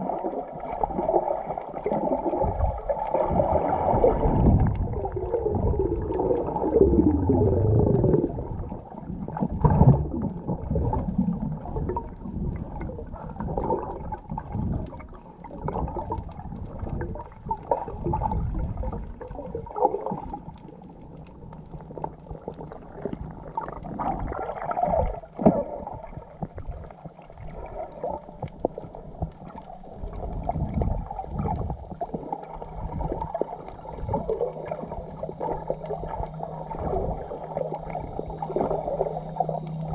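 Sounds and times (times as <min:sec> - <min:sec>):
underwater sloshing and gurgling: 0:00.0 - 0:39.9.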